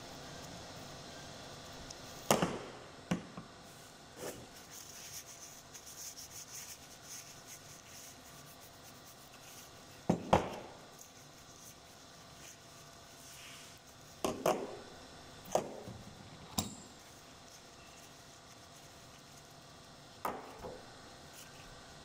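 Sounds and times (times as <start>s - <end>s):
tissue rubbing on metal: 4.2s - 10.1s, 10.9s - 14.2s, 17.0s - 19.9s.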